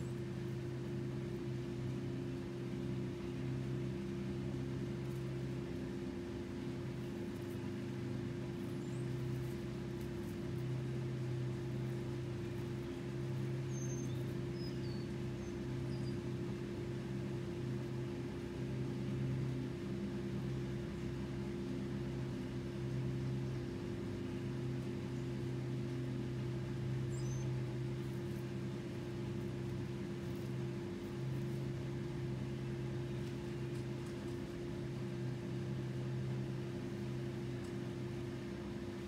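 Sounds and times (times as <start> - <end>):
low machine hum: 0.0 - 39.0
faint high chirp: 13.7 - 16.2, 27.1 - 27.5.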